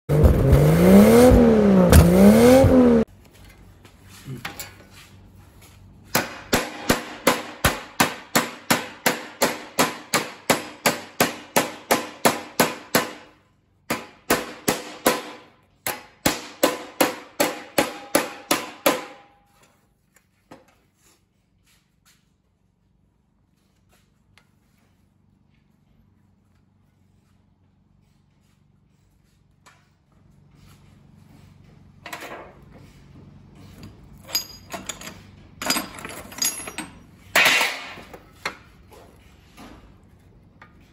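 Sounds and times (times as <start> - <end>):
hammer striking sheet steel: 6.1 - 19.7, 37.3 - 38.6.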